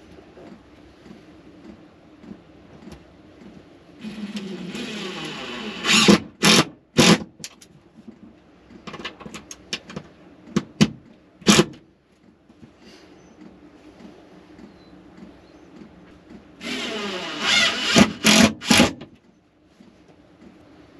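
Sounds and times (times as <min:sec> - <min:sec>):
impact driver driving a screw: 0:04.0 - 0:07.3, 0:11.4 - 0:11.8, 0:16.6 - 0:19.1.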